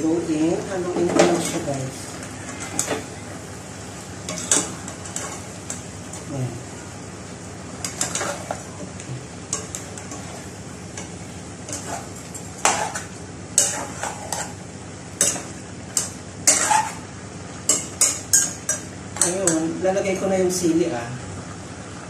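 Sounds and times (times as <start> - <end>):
low cooking hiss: 0.0 - 22.0
metal spatula scraping a pot: 7.8 - 8.6, 11.7 - 14.6, 15.2 - 17.0.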